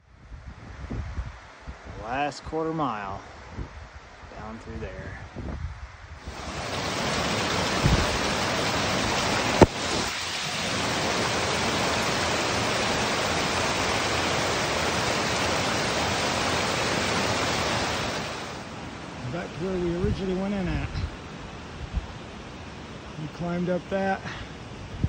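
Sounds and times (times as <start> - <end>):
creek rushing over rocks: 6.2 - 21.4.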